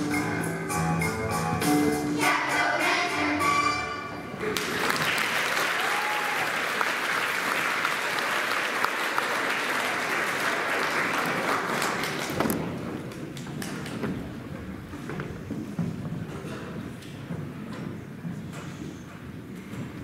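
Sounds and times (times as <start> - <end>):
audience applauding: 4.4 - 14.0.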